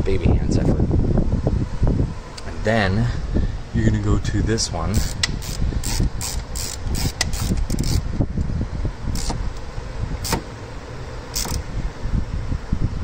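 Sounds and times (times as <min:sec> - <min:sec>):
hand ratchet clicking: 0:05.0 - 0:08.0, 0:11.3 - 0:11.6.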